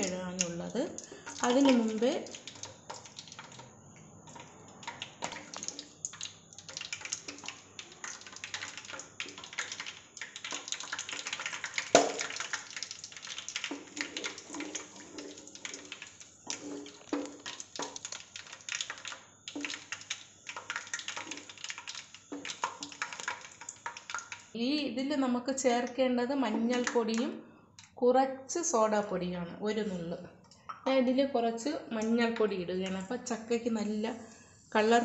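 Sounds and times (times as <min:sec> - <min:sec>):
oil crackling and popping in pan: 0:00.0 - 0:24.6, 0:25.6 - 0:28.0
wooden spatula stirring: 0:04.3 - 0:24.4.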